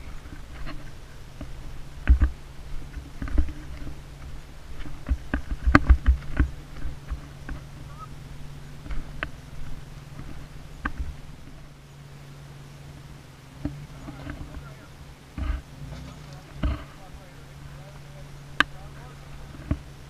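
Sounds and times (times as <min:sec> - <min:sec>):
low engine drone: 0:00.0 - 0:20.0
rocks knocking under tires: 0:00.1 - 0:07.8, 0:13.5 - 0:17.4.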